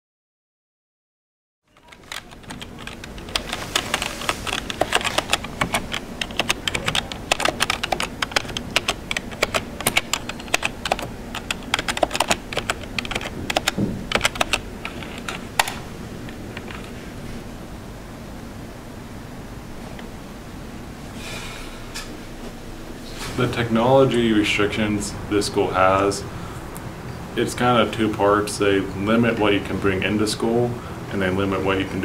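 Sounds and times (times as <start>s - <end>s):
keyboard typing: 1.7s - 16.9s.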